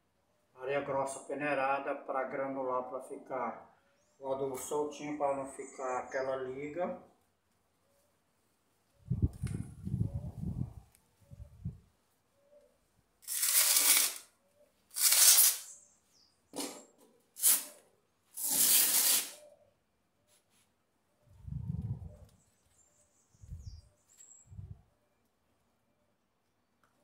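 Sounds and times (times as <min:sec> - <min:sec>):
gritty soil poured into pot: 0:13.2 - 0:14.2, 0:14.9 - 0:15.7, 0:18.4 - 0:19.4
dull low thumps: 0:21.4 - 0:22.2.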